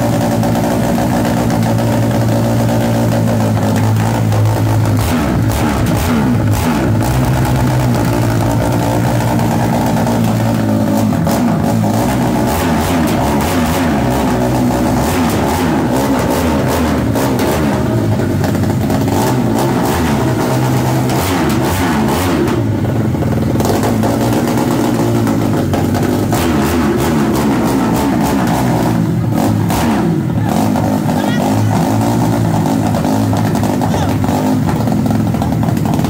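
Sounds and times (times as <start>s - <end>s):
motorcycle engine revving: 0.0s - 36.0s.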